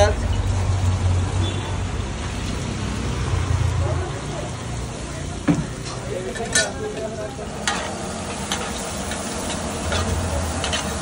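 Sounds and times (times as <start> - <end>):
onions sizzling in oil: 4.8 - 11.0
spatula scraping a griddle: 7.6 - 11.0.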